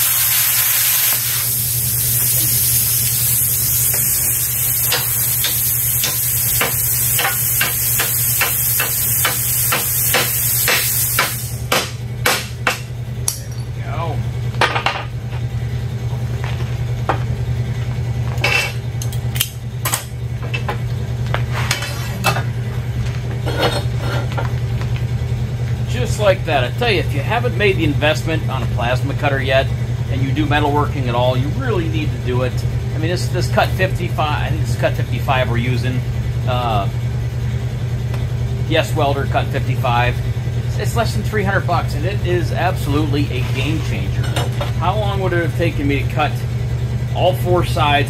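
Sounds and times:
plasma cutter hissing: 0.0s - 12.0s
steady low hum: 0.0s - 48.0s
metal clanks and knocks: 14.6s - 15.4s, 23.3s - 24.5s, 43.6s - 44.8s.

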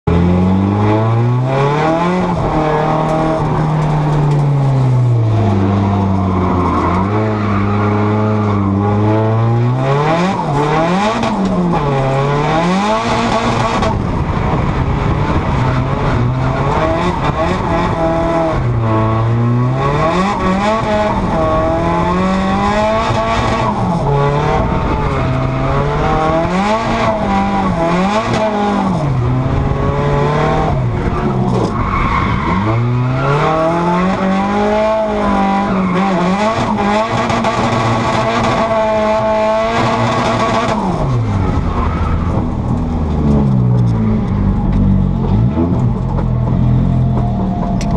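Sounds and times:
car engine revving: 0.0s - 47.9s
tires squealing and skidding: 5.1s - 9.1s, 31.1s - 36.9s.

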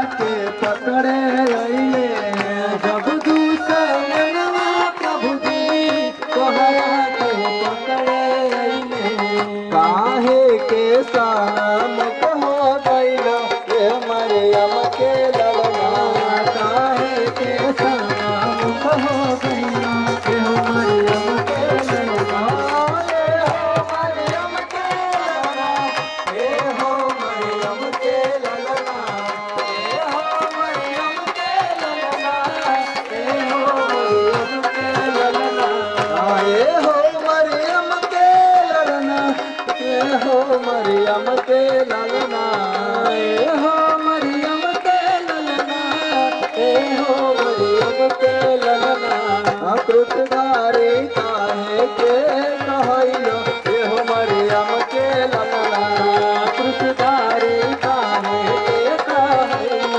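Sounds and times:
voices singing: 0.0s - 59.9s.

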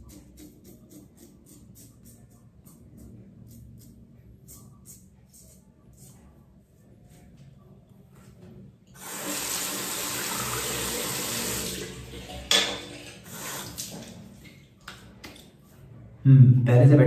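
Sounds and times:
tap water running into sink: 9.0s - 15.4s.

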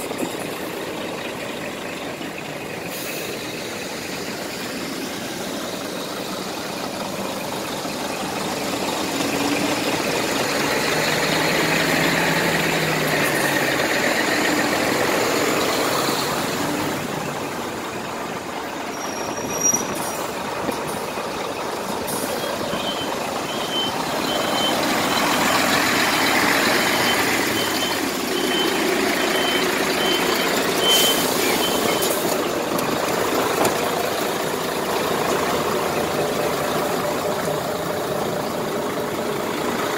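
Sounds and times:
diesel truck engine running: 0.0s - 39.9s
reversing alarm beeping: 22.2s - 32.2s.

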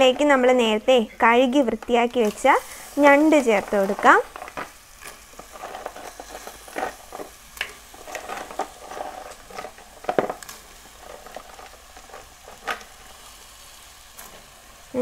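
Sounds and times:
faint sizzle: 0.0s - 15.0s
crab pieces knocking against pot: 3.5s - 13.0s.

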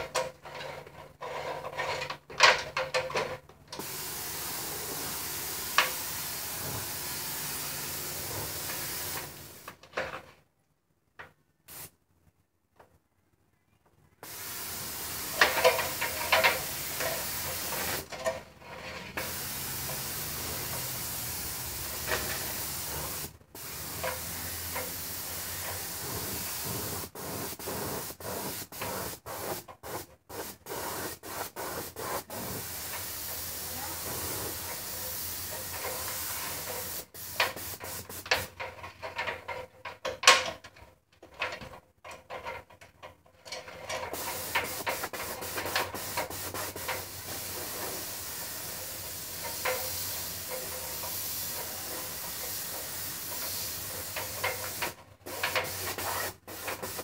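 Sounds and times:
paint sprayer hissing: 3.8s - 9.8s, 11.7s - 11.9s, 14.2s - 18.2s, 19.1s - 38.5s, 44.0s - 57.0s.

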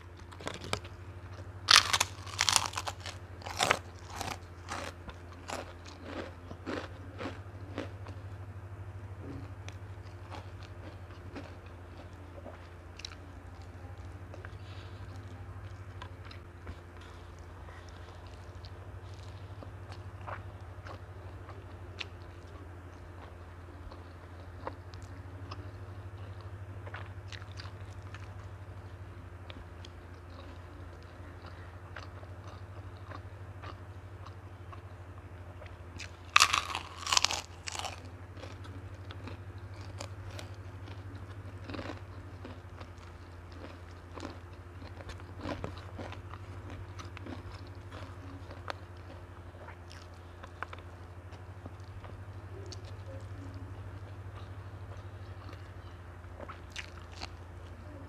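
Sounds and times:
soft chewing and mouth clicks: 0.0s - 8.4s, 9.2s - 58.0s
steady low hum: 0.0s - 58.0s
loud crunchy bites: 0.2s - 0.9s, 1.7s - 8.2s, 36.0s - 41.0s, 41.6s - 49.2s.

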